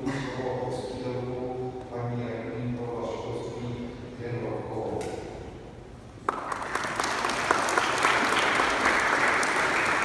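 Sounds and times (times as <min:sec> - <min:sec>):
audience applause: 0:06.3 - 0:10.0.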